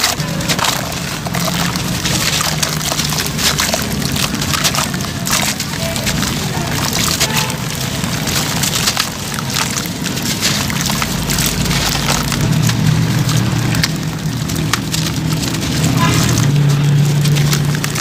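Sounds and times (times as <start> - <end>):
gritty crackles: 0.0 - 18.0
splashes in water: 0.0 - 18.0.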